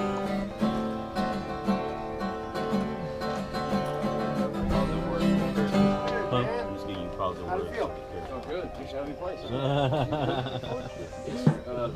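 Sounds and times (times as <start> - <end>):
strummed acoustic guitar: 0.0 - 8.4.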